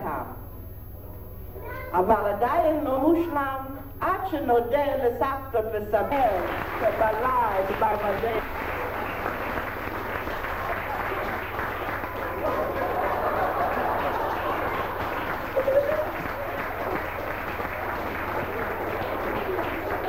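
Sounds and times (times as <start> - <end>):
audience applauding: 6.3 - 20.0.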